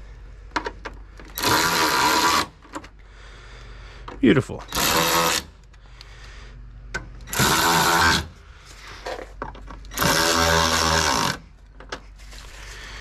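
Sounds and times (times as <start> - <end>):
cordless screwdriver motor whirring: 1.3 - 2.6, 4.7 - 5.5, 7.3 - 8.3, 9.9 - 11.4.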